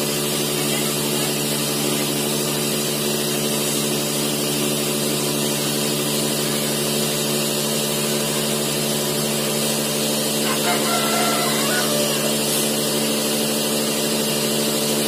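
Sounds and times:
cotton candy machine motor hum: 0:00.0 - 0:15.0
gas hiss: 0:08.0 - 0:14.6.

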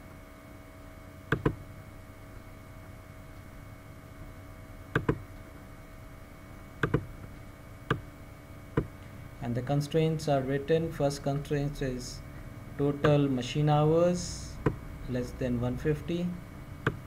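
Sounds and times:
background hum: 0:00.0 - 0:17.0
computer mouse clicking: 0:05.0 - 0:05.2, 0:06.8 - 0:07.1.

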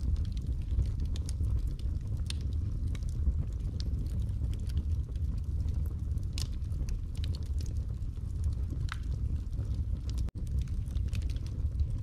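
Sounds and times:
logs crackling in fireplace: 0:00.0 - 0:12.0
low rumble of flames: 0:00.0 - 0:12.0
sharp pops and snaps: 0:08.7 - 0:12.0.

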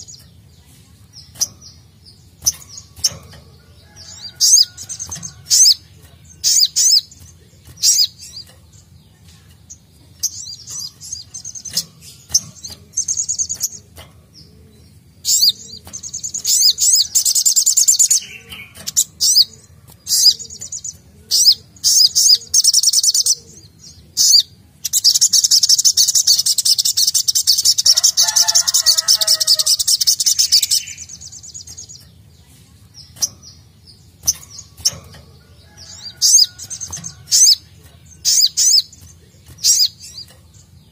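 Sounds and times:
bird chirping: 0:00.0 - 0:40.9.

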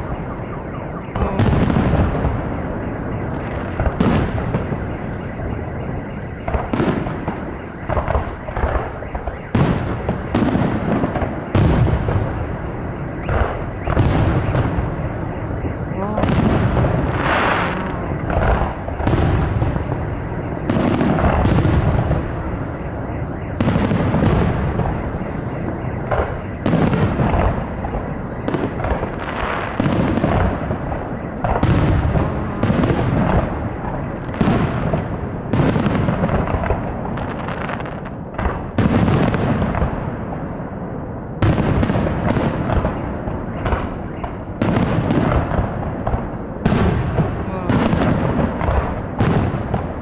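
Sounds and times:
continuous rumble: 0:00.0 - 0:50.0
firework booms: 0:00.0 - 0:50.0.

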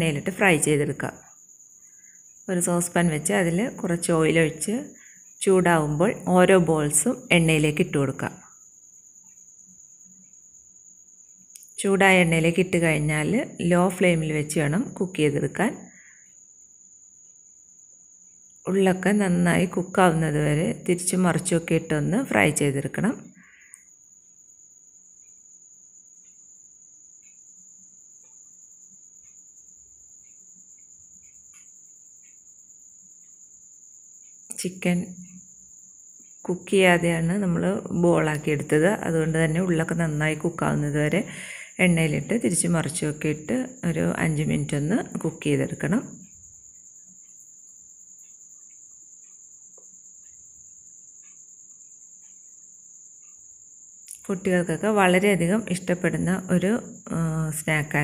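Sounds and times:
steady high-pitched whine: 0:00.0 - 0:58.0
light tick: 0:11.3 - 0:11.8, 0:27.2 - 0:27.5, 0:29.2 - 0:29.5, 0:47.2 - 0:50.4, 0:51.2 - 0:51.5
faint pops and ticks: 0:30.2 - 0:32.4, 0:48.2 - 0:50.4.

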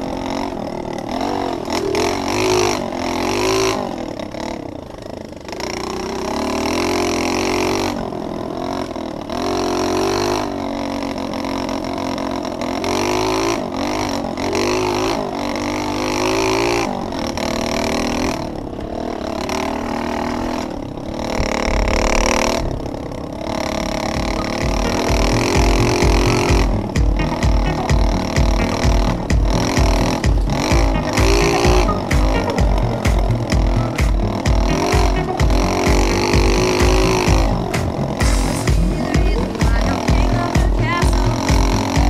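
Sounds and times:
motorbike engine revving: 0:00.0 - 0:42.0
low rumble: 0:24.0 - 0:42.0.

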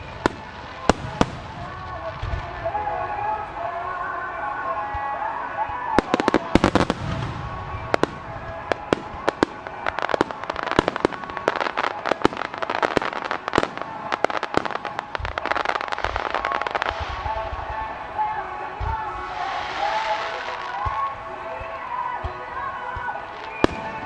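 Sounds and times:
fireworks bangs and crackling: 0:00.0 - 0:24.0.

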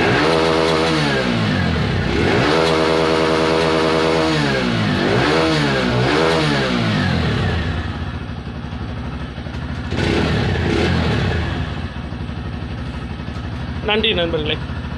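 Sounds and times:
motorcycle engine revving: 0:00.0 - 0:14.9.

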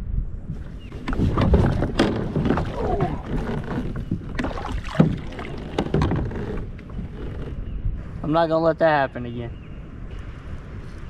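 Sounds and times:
paddle strokes splashing water: 0:00.6 - 0:07.6
paddle knocking against kayak: 0:00.9 - 0:07.6.

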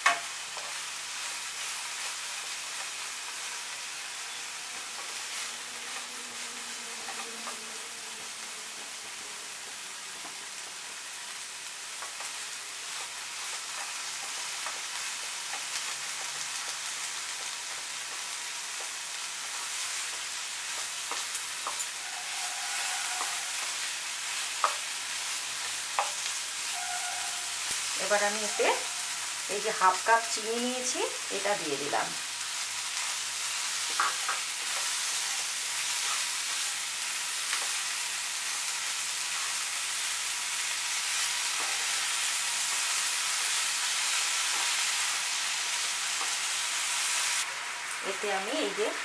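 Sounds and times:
fruit slices sizzling in oil: 0:00.0 - 0:49.0
wooden spatula scraping and tapping pan: 0:33.9 - 0:35.2.

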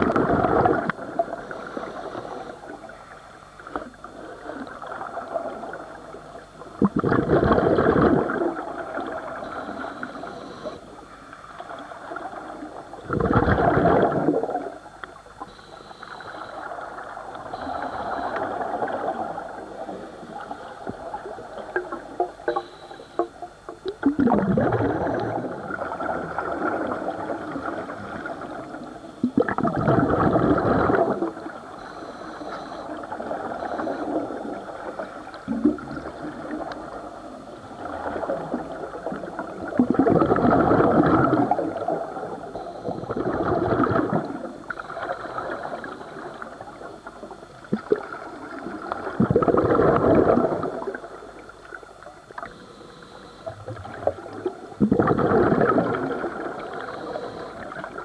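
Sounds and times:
underwater bubbles gurgling: 0:00.0 - 0:58.0
diver breathing: 0:17.5 - 0:19.2, 0:31.8 - 0:34.2, 0:52.5 - 0:53.7.

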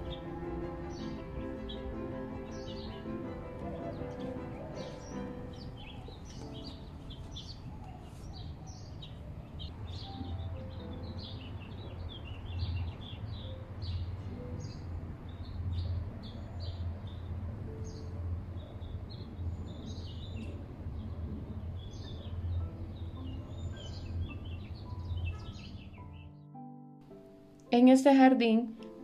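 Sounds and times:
small birds chirping: 0:00.0 - 0:26.5.

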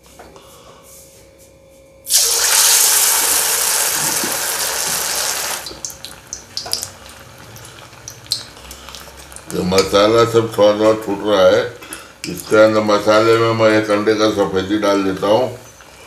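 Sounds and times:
oil crackling and spattering: 0:02.1 - 0:09.9
chicken deep-frying in hot oil: 0:02.1 - 0:10.3.

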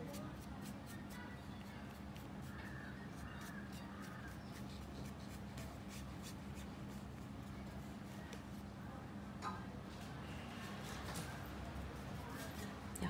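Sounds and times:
paintbrush brushing strokes: 0:00.0 - 0:08.6.

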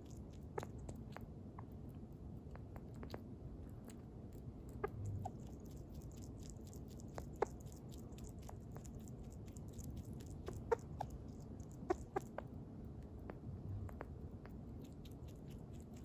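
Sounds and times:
sugar glider clucking chirps: 0:00.0 - 0:01.0, 0:04.6 - 0:12.6
faint chewing clicks: 0:00.0 - 0:16.0.

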